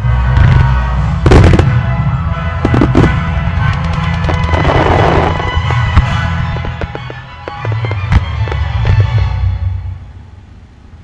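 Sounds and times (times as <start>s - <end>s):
music: 0.0s - 10.6s
fireworks bursting: 0.3s - 9.3s
crackling firework shells: 0.4s - 1.9s, 2.6s - 9.2s.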